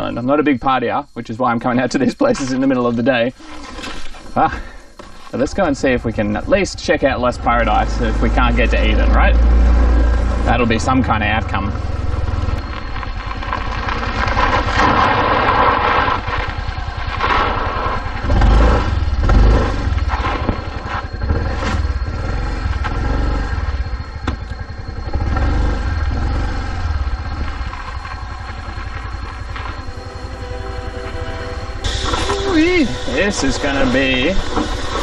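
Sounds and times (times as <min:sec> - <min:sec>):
scooter engine running: 0:07.4 - 0:35.0.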